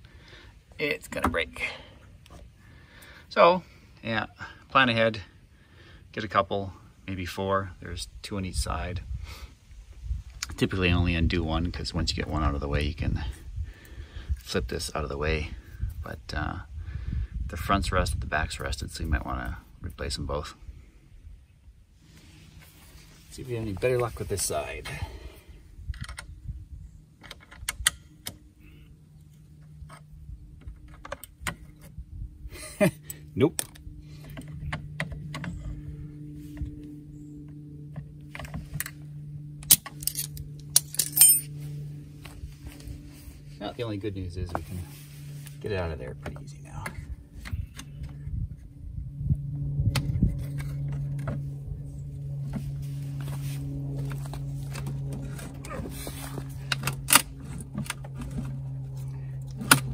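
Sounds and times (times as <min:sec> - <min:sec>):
steady low hum: 0:00.0 - 0:59.9
rusted nut cracking: 0:39.6 - 0:41.5.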